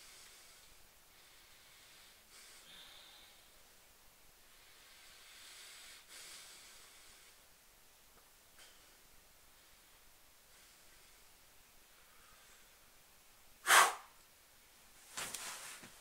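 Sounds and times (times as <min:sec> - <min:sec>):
faint breaths through nose: 0:00.0 - 0:03.6, 0:04.4 - 0:07.5, 0:11.9 - 0:12.9
soft hiss: 0:00.0 - 0:16.0.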